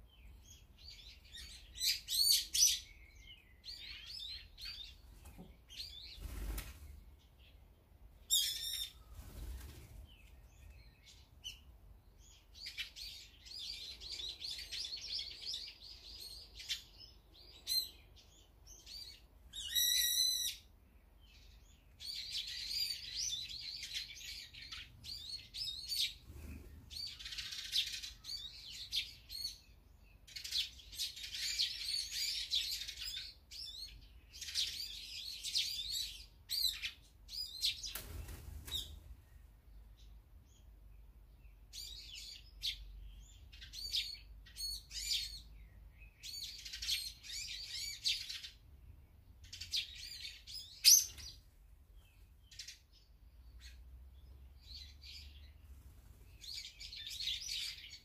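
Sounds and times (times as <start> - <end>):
songbirds chirping and twittering: 0.0 - 58.0
loud sharp bird calls: 8.2 - 11.6, 12.3 - 20.7, 49.5 - 51.4.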